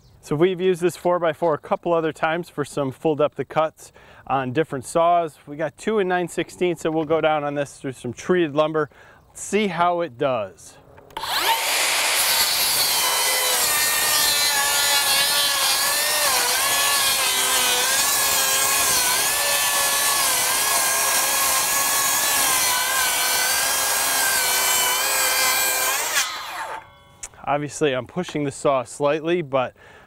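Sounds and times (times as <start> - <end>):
circular saw cutting wood: 11.2 - 27.1.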